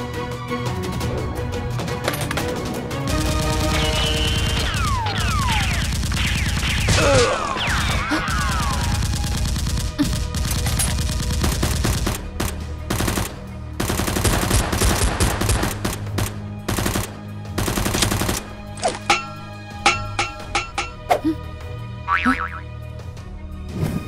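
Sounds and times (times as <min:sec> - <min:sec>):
background music: 0:00.0 - 0:24.0
automatic gunfire bursts: 0:08.7 - 0:18.4.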